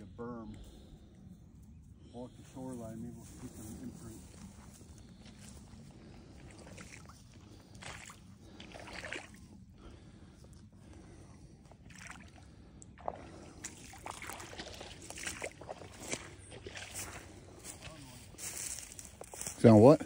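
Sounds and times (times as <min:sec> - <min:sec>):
footsteps splashing through water: 0:05.2 - 0:09.6, 0:11.6 - 0:20.0.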